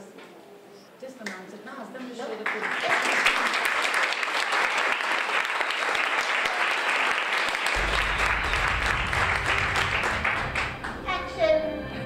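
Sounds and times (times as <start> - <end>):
audience applauding: 2.4 - 11.2.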